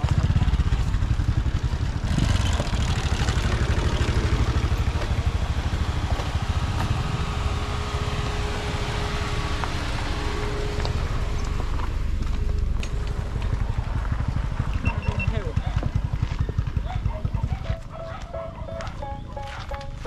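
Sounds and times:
vehicle motor rumble: 0.0 - 20.0
faint steady tone: 6.4 - 15.3.

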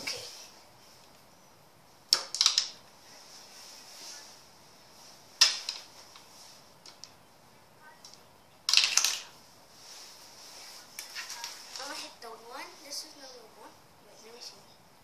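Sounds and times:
toy pool balls clicking: 2.1 - 2.8, 8.0 - 9.3.

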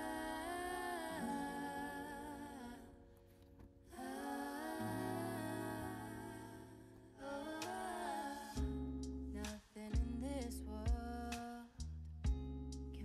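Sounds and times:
soft backing music: 7.6 - 13.0.

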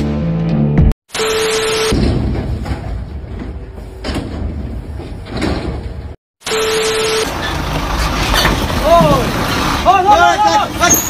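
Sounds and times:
loader crane rumbling: 2.2 - 11.0.

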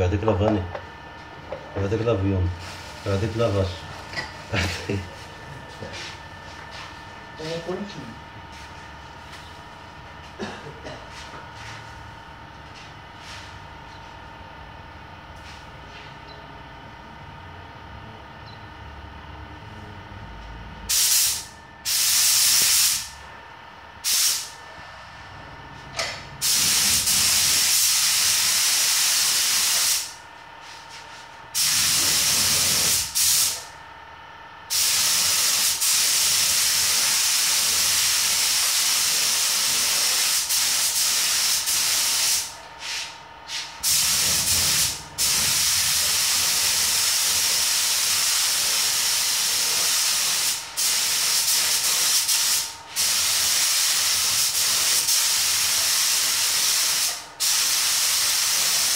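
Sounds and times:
spray gun hissing compressed air: 20.9 - 23.2, 24.0 - 24.6, 26.4 - 30.2, 31.6 - 33.6, 34.7 - 58.9.

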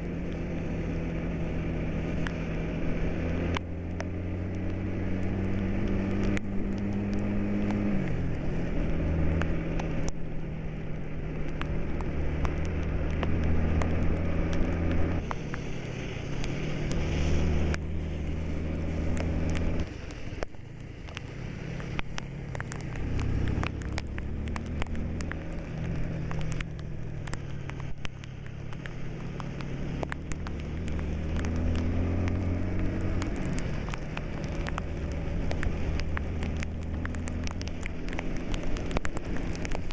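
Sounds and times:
sharp ticks: 17.6 - 39.9.

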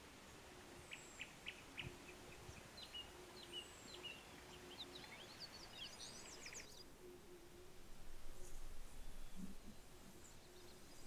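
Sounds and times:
small birds chirping: 0.8 - 6.9.

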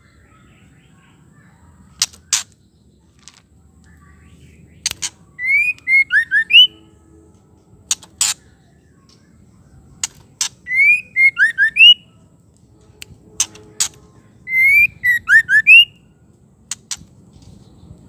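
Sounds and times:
sharp bird clicks: 1.9 - 4.1, 4.7 - 6.7, 7.9 - 9.3, 10.0 - 12.0, 13.0 - 15.9, 16.6 - 17.2
bird whistling: 5.3 - 6.8, 10.6 - 12.1, 14.5 - 16.0.

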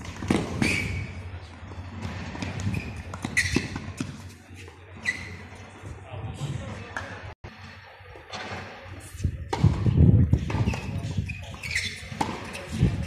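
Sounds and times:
shoe squeaks: 0.3 - 5.9, 10.4 - 13.0.

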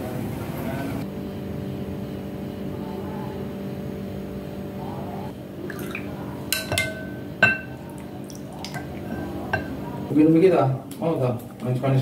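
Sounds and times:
low background hum: 0.0 - 12.0
spoon clinking against glass: 5.8 - 7.8, 8.7 - 9.8.

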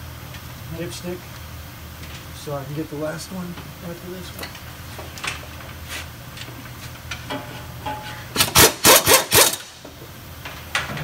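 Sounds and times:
impact wrench hammering: 7.3 - 9.7.

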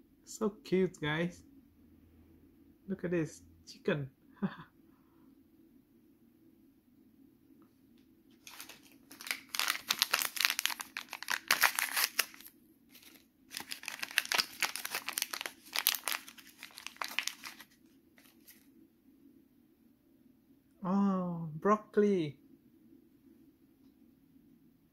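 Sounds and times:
plastic packet crinkling: 8.4 - 18.6.

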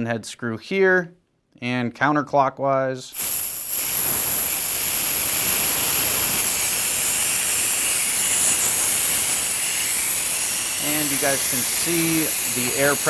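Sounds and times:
compressed air hissing: 3.1 - 13.0.

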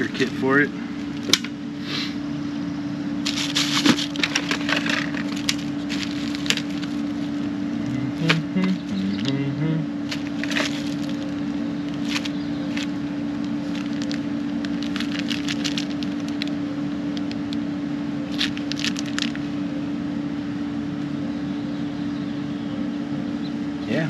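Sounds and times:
steady low hum: 0.0 - 24.0
small parts rattling in metal drawer: 3.3 - 7.0.

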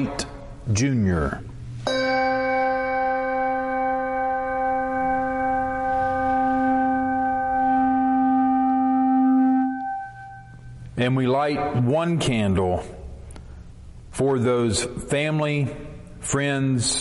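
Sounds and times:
bell ringing low tone: 1.8 - 10.8.

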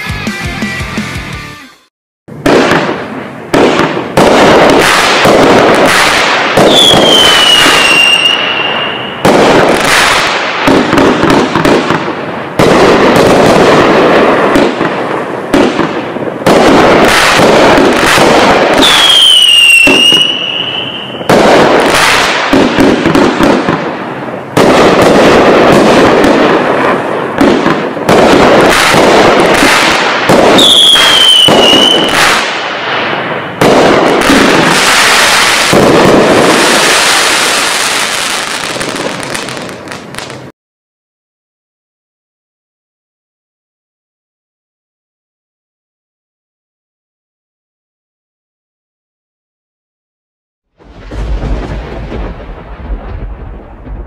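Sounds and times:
firework bangs: 2.3 - 40.5, 50.8 - 54.0
falling firework whistle: 5.9 - 9.4, 18.0 - 22.6, 30.5 - 32.4
crackle of bursting stars: 50.8 - 54.0.

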